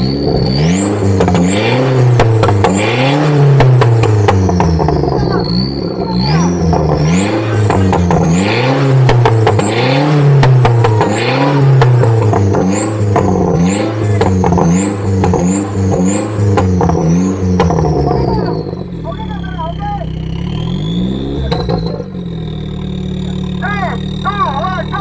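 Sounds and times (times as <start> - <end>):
engine revving: 0.0 - 25.0
high whine following revs: 0.0 - 25.0.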